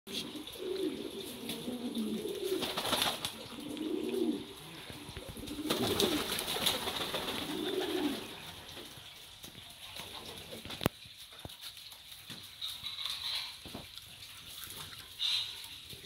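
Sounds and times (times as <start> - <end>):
pigeons cooing: 0.1 - 9.0, 15.1 - 16.0.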